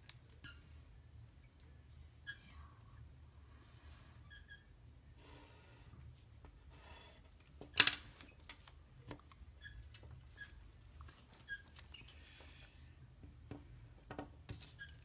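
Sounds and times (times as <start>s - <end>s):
faint squeaks: 0.3s - 0.9s, 1.6s - 4.9s, 9.5s - 12.7s.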